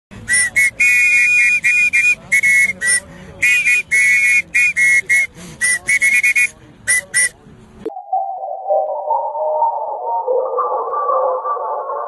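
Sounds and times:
plastic harmonica notes: 0.2 - 7.4.

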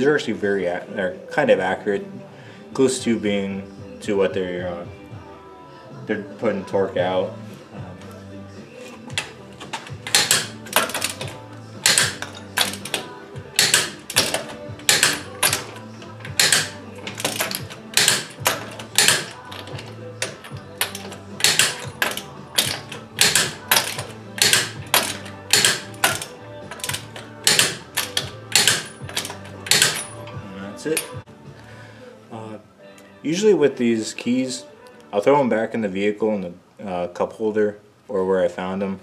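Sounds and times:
ratcheting socket wrench clicking: 9.1 - 30.1.

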